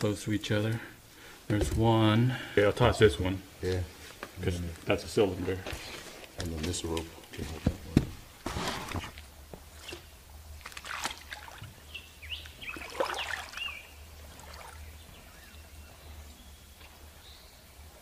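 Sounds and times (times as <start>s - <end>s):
creek water trickling: 9.1s - 18.0s
birds chirping: 9.6s - 18.0s.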